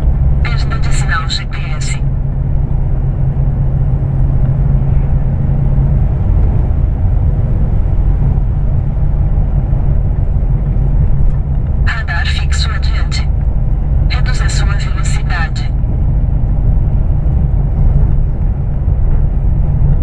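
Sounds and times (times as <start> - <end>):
low hum: 0.0 - 20.0
road noise: 0.0 - 20.0
truck diesel engine droning: 0.0 - 20.0.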